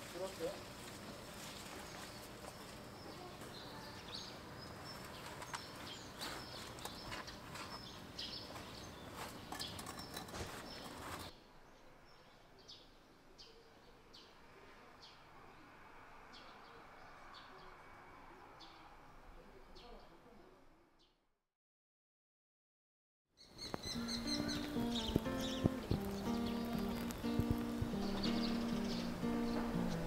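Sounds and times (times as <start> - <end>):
bird chirping: 1.5 - 14.4, 23.4 - 30.0.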